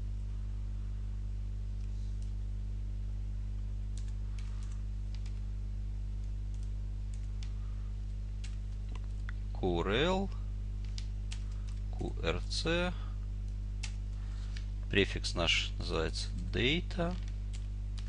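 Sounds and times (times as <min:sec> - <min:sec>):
electrical hum: 0:00.0 - 0:18.0
computer keyboard keystrokes: 0:04.0 - 0:05.4, 0:06.2 - 0:07.6, 0:08.4 - 0:09.4, 0:10.8 - 0:11.8, 0:13.8 - 0:14.7, 0:17.1 - 0:18.0.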